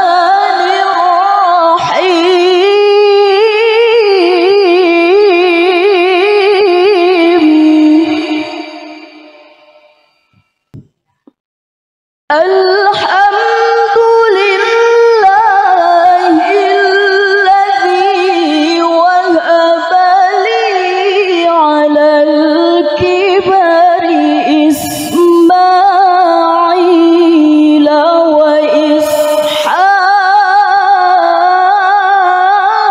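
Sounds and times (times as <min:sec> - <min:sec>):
woman reciting melodically: 0:00.0 - 0:09.1, 0:12.3 - 0:32.9
quick breath: 0:29.0 - 0:29.7.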